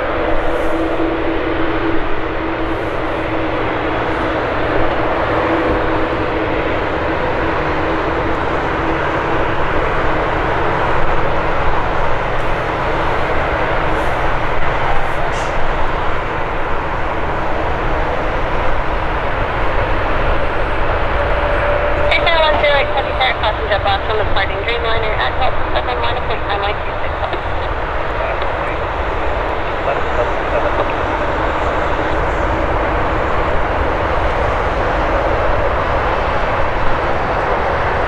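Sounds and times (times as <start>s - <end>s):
jet engine roar: 0.0s - 38.0s
faint steady hum: 22.0s - 33.7s.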